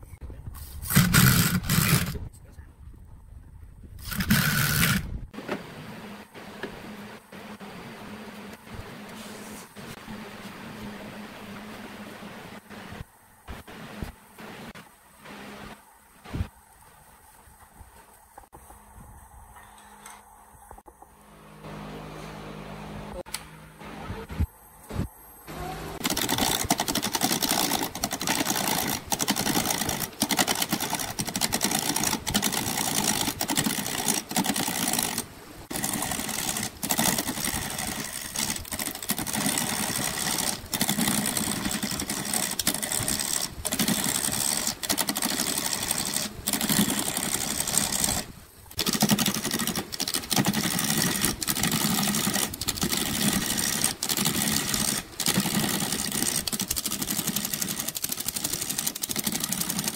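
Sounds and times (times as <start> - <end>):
wood lathe running: 26.0 - 48.2.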